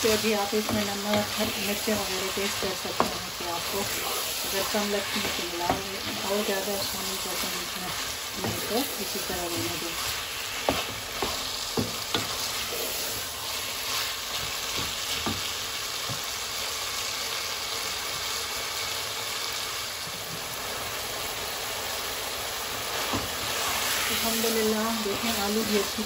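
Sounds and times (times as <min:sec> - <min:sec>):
meat and potatoes sizzling: 0:00.0 - 0:26.0
spoon knocking and scraping pot: 0:00.4 - 0:03.9, 0:04.5 - 0:12.5.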